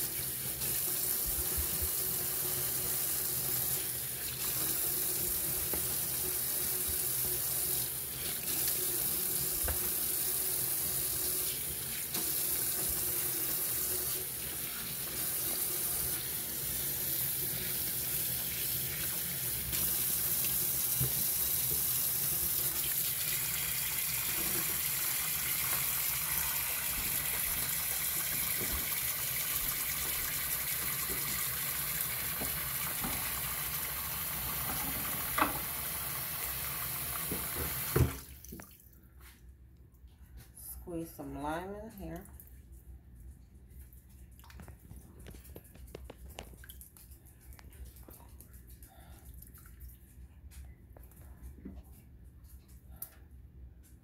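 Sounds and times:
tap water running into sink: 0:00.0 - 0:38.8.

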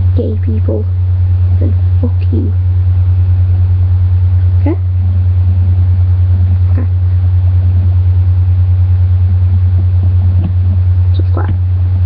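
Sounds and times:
pulsing low hum: 0:00.0 - 0:12.0.

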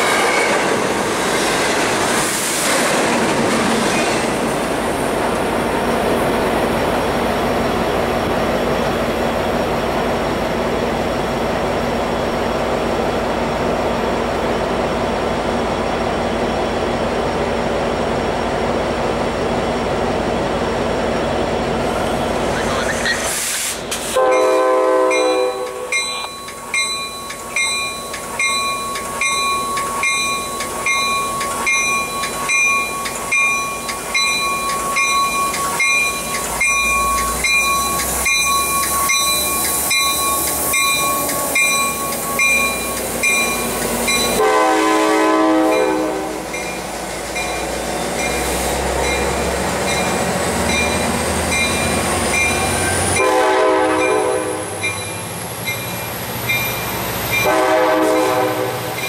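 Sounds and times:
locomotive engine and wheels rumbling: 0:00.0 - 0:59.0
locomotive horn blasts: 0:24.2 - 0:26.0, 0:44.3 - 0:46.5, 0:53.1 - 0:54.8, 0:57.4 - 0:58.9
train bell ringing: 0:24.3 - 0:44.6, 0:45.7 - 0:59.0.

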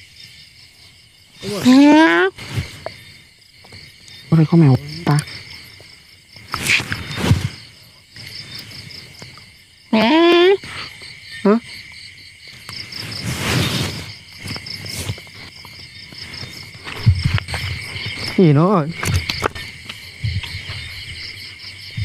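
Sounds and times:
crickets chirping: 0:00.0 - 0:22.0
hissing rush: 0:12.9 - 0:14.2.

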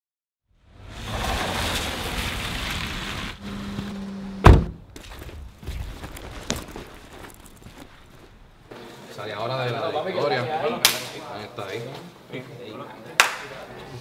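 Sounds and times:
loud thunk: 0:04.4 - 0:04.8.

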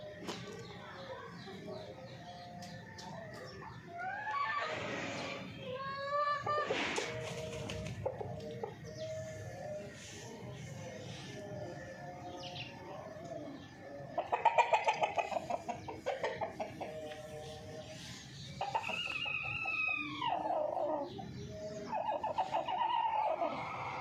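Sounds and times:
chickens clucking: 0:00.0 - 0:24.0.

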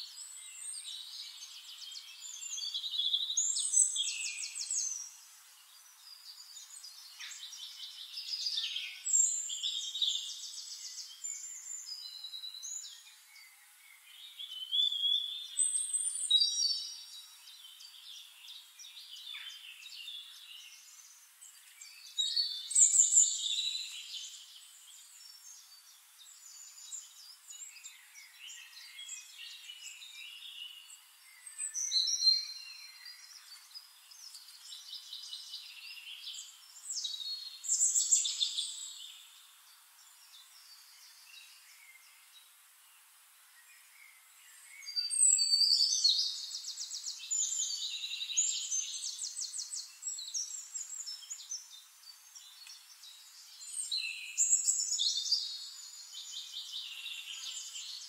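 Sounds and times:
songbirds singing: 0:00.0 - 0:58.0.

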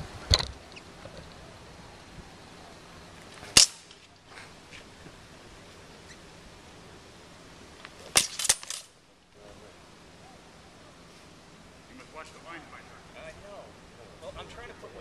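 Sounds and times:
swords clashing: 0:03.5 - 0:04.0, 0:08.1 - 0:08.9.

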